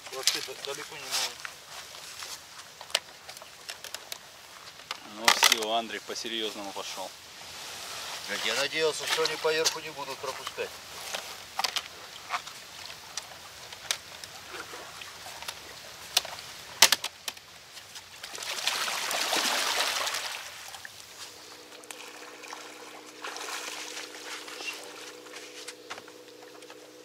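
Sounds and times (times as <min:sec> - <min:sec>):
water sloshing and trickling: 0:00.0 - 0:27.0
water rushing swell: 0:18.7 - 0:25.6
steady low hum: 0:20.9 - 0:27.0.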